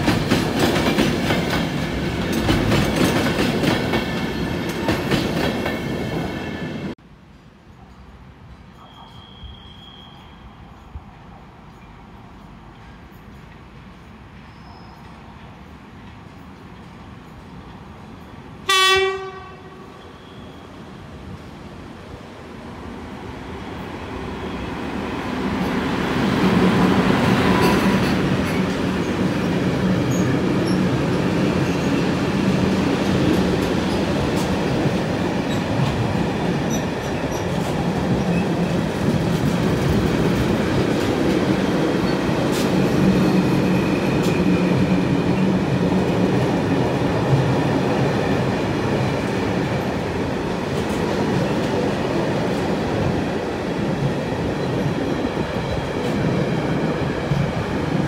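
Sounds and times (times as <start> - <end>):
freight train wheels rumbling: 0.0 - 7.0, 7.8 - 58.0
high wheel squeal: 8.8 - 11.0, 20.0 - 20.9.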